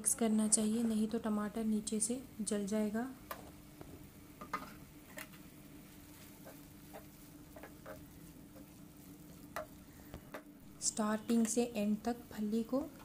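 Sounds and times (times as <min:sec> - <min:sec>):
faint steady hum: 0:00.0 - 0:13.0
spatula scraping frying pan: 0:06.2 - 0:09.4.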